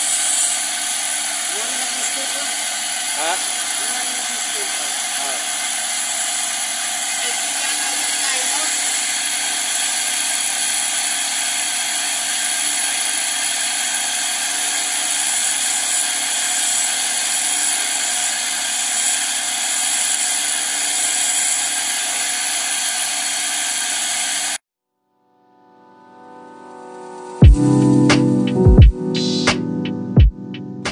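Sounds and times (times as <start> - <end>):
grinding wheel whining: 0.0 - 24.6.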